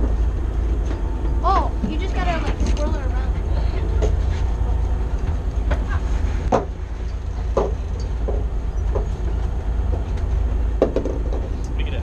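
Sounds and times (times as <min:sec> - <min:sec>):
boat engine low rumble: 0:00.0 - 0:12.0
knocks and clatters: 0:05.2 - 0:11.7.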